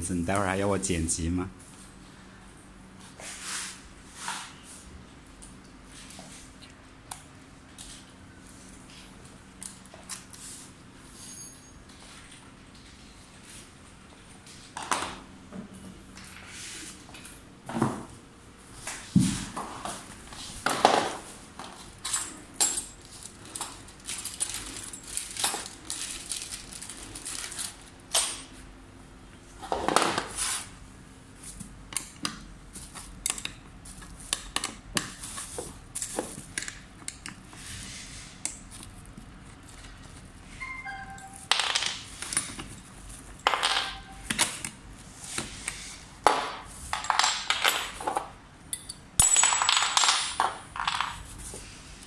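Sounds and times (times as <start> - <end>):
small hard parts clinking: 22.0 - 28.4, 47.0 - 51.2
plastic wrap crinkling: 23.0 - 27.9.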